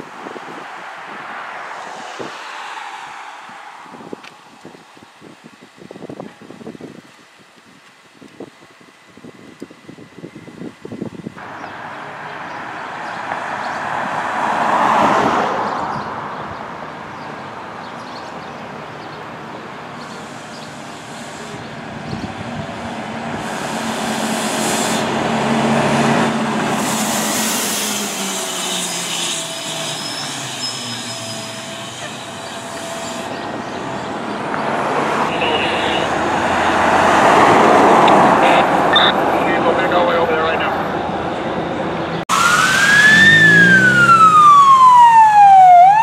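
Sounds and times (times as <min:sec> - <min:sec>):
vehicles passing by: 0:00.0 - 0:05.9, 0:10.9 - 0:31.0, 0:31.6 - 0:46.0
low engine tone falling in pitch: 0:37.8 - 0:46.0.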